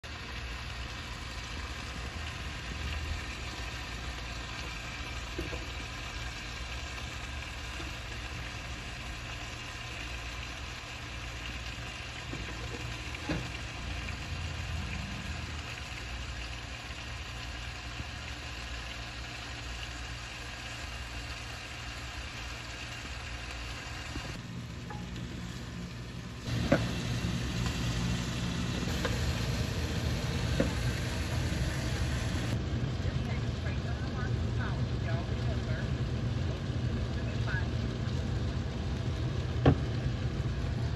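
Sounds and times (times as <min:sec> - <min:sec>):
chicken sizzling in oil: 0:00.0 - 0:40.9
low hum: 0:22.1 - 0:40.9.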